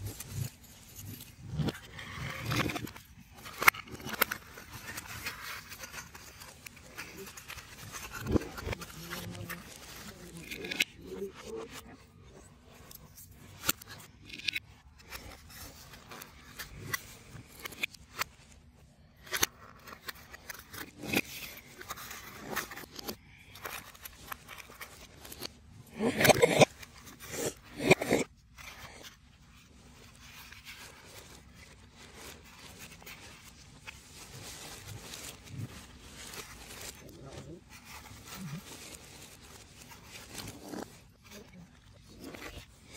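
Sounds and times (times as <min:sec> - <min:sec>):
puzzle pieces clicking and scraping: 0:00.0 - 0:11.8, 0:12.4 - 0:18.4, 0:19.1 - 0:42.9
loud crunching scrapes: 0:28.9 - 0:42.9.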